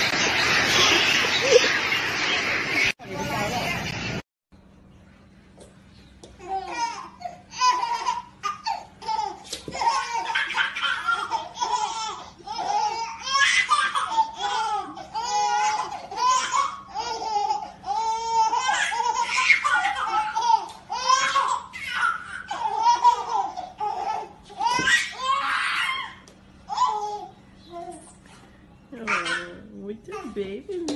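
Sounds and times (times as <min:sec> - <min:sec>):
babies laughing: 0:00.0 - 0:03.0, 0:06.4 - 0:28.2.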